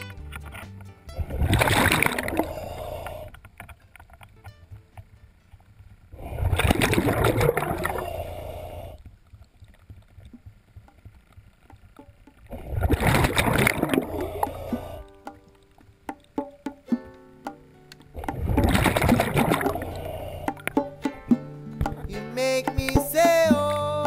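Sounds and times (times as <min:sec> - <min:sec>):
air bubbles rushing underwater: 0:01.3 - 0:03.3, 0:06.2 - 0:08.2, 0:12.5 - 0:15.1, 0:18.2 - 0:20.7.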